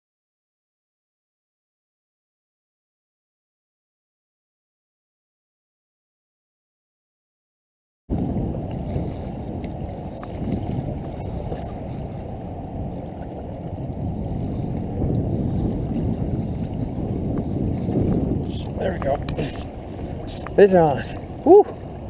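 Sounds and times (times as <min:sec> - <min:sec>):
wind buffeting microphone: 0:08.1 - 0:22.0.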